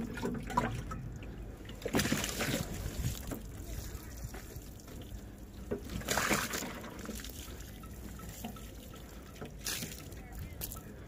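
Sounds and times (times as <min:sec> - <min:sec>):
water trickling and dripping: 0:00.0 - 0:11.0
water splash: 0:01.8 - 0:03.4, 0:05.8 - 0:07.6.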